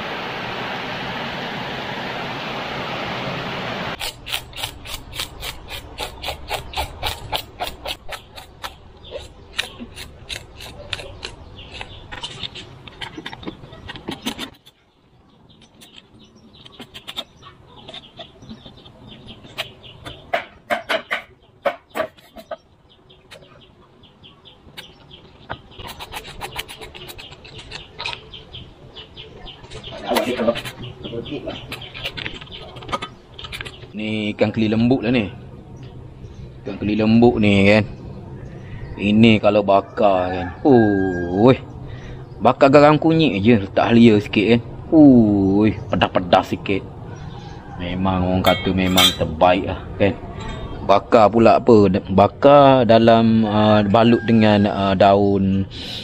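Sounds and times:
steady rushing noise: 0:00.0 - 0:04.0
rasping rubbing strokes: 0:04.0 - 0:13.2, 0:25.8 - 0:28.0
bird chirping: 0:04.1 - 0:44.6, 0:45.5 - 0:56.0
quick regular scraping strokes: 0:25.7 - 0:28.2.

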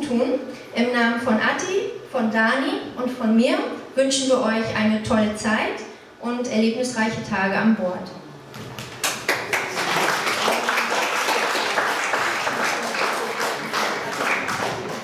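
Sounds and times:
people applauding: 0:08.6 - 0:15.0.

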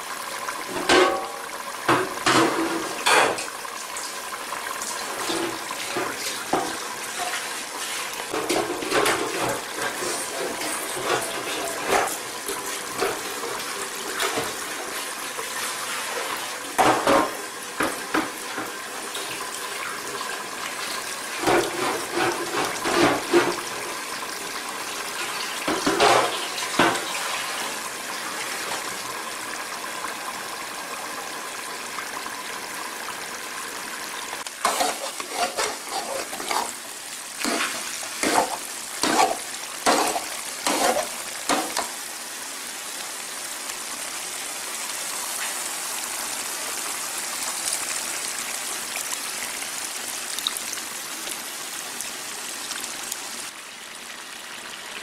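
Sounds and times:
mixture simmering with bubbling hiss: 0:00.0 - 0:55.0
metal spoon scraping a pan: 0:05.2 - 0:12.2, 0:21.4 - 0:23.6, 0:34.6 - 0:36.8, 0:37.4 - 0:41.9.

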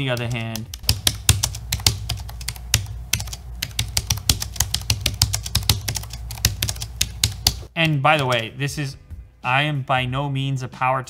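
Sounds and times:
fast typing on keyboard: 0:00.0 - 0:08.5.

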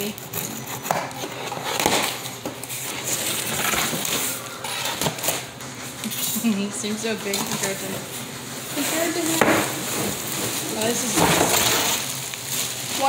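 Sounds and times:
cardboard crackling and scraping: 0:00.0 - 0:05.5, 0:08.7 - 0:13.0.

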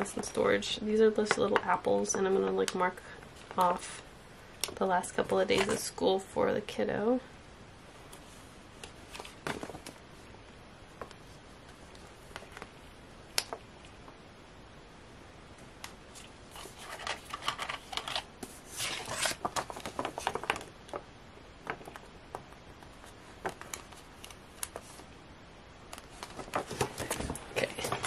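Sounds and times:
paper pages turning: 0:16.1 - 0:21.0.

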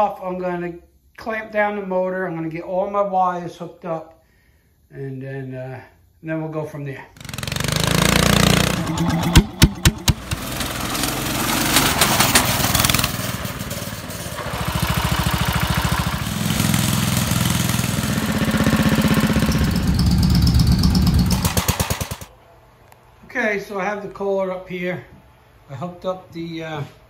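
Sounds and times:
sharp engine pops: 0:07.2 - 0:13.5, 0:20.8 - 0:22.3
engine running and revving: 0:07.2 - 0:22.3.

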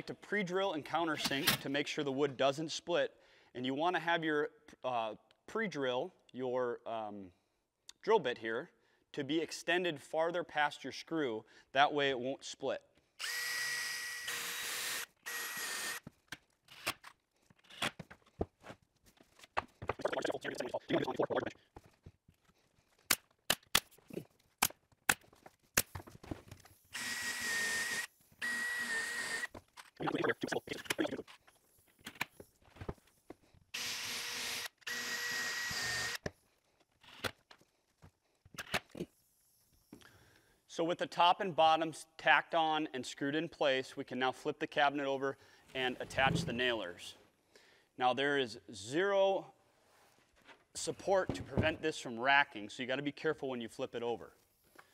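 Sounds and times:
power drill boring into wood: 0:13.2 - 0:16.0, 0:26.9 - 0:29.5, 0:33.7 - 0:36.3.

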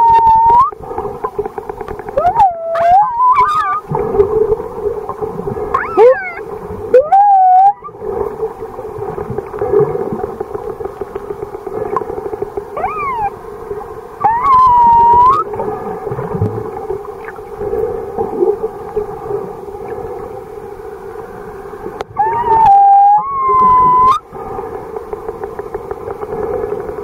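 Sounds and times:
whales whistling underwater: 0:00.0 - 0:00.8, 0:02.2 - 0:04.0, 0:05.6 - 0:08.1, 0:12.7 - 0:13.4, 0:14.2 - 0:15.6, 0:22.1 - 0:24.3.

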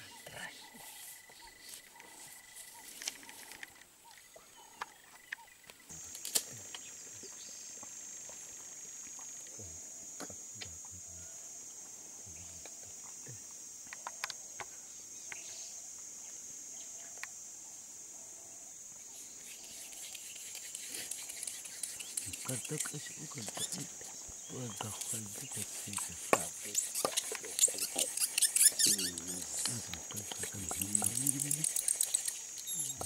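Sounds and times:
high-pitched insect chorus: 0:00.0 - 0:33.0
wooden pole rustling in soil: 0:19.4 - 0:33.0.

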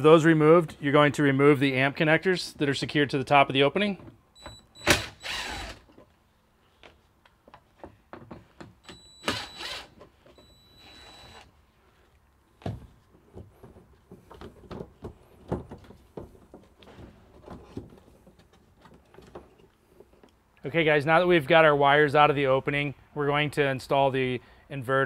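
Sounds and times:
impact driver whining: 0:04.4 - 0:05.9, 0:08.8 - 0:11.5.

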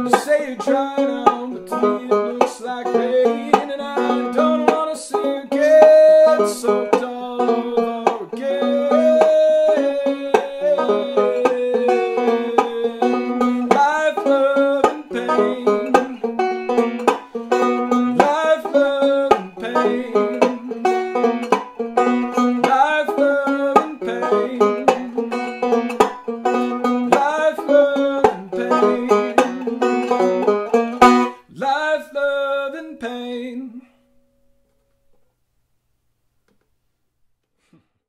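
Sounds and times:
banjo picking: 0:00.0 - 0:32.1.

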